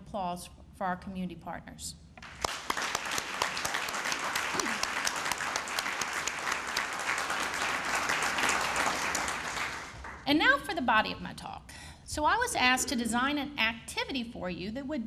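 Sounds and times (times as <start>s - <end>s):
audience applauding: 2.2s - 10.2s.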